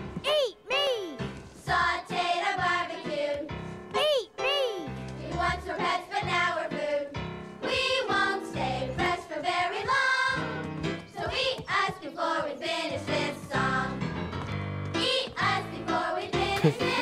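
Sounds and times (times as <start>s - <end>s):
instrumental backing music: 0.0s - 17.0s
children singing: 15.0s - 17.0s.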